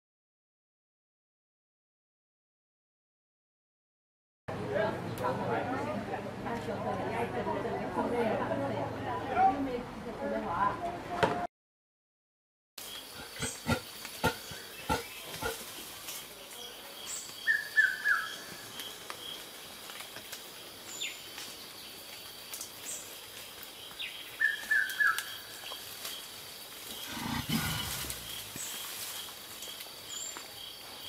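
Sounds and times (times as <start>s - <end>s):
insects chirring: 12.8s - 31.0s.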